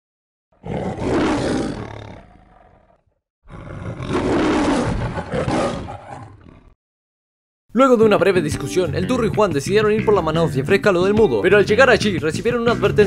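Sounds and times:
lion roaring: 0:00.6 - 0:06.8.

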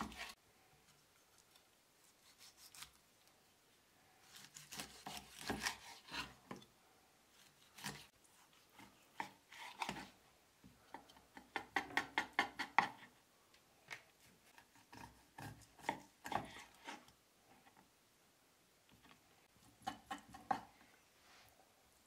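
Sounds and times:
knife cutting fish on wooden board: 0:04.3 - 0:06.6, 0:07.7 - 0:10.1, 0:14.6 - 0:17.0.

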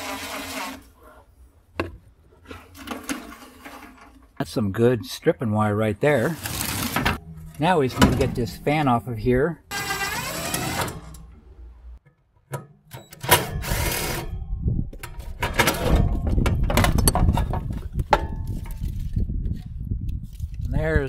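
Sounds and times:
metal rattling and clattering: 0:15.0 - 0:19.2.

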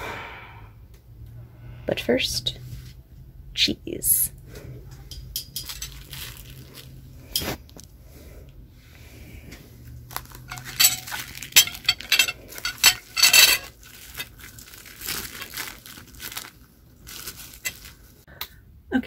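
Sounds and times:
plastic wrapper crinkling: 0:05.6 - 0:07.1, 0:10.1 - 0:18.2
knife clinking on ceramic plate: 0:10.5 - 0:13.7.

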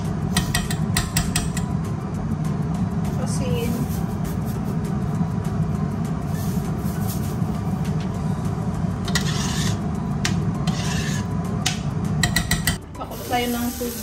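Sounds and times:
steady low hum: 0:00.0 - 0:14.0
spoon scraping pot: 0:09.1 - 0:09.9, 0:10.6 - 0:11.3.

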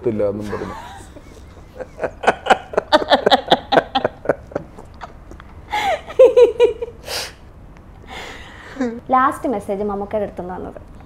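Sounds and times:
man laughing: 0:00.4 - 0:05.1
hissing breath: 0:07.0 - 0:07.4, 0:08.0 - 0:08.9.

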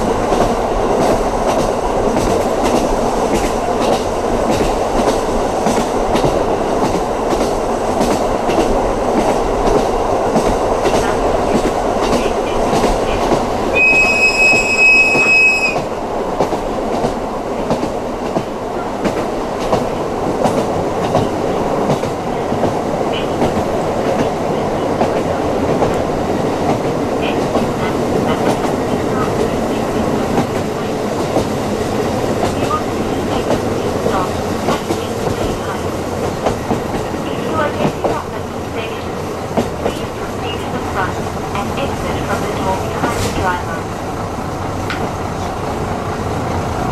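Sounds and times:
train running on rails: 0:00.0 - 0:46.9
loud high steady tone: 0:13.8 - 0:15.8.

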